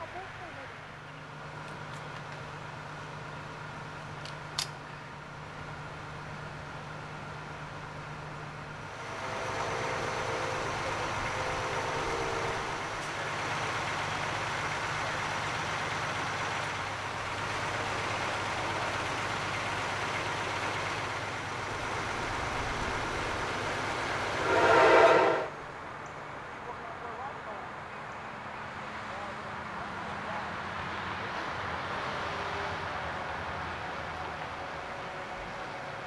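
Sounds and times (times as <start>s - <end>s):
heavy vehicle engine rumble: 0.0s - 36.0s
loud horn blast: 9.0s - 13.1s, 24.2s - 25.7s.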